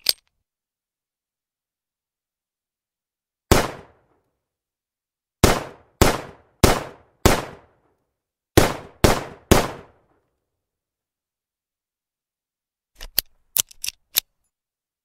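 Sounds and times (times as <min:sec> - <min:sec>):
pistol shots: 0:03.5 - 0:04.0, 0:05.4 - 0:07.8, 0:08.6 - 0:10.0.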